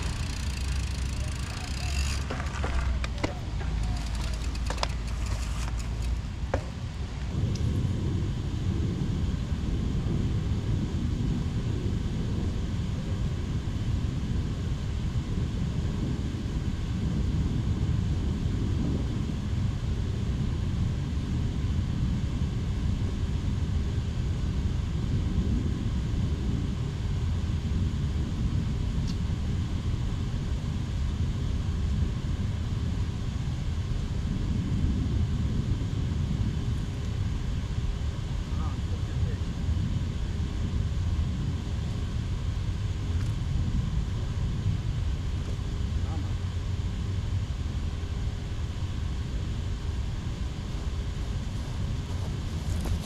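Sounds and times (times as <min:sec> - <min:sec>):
wind buffeting microphone: 0:50.6 - 0:53.0.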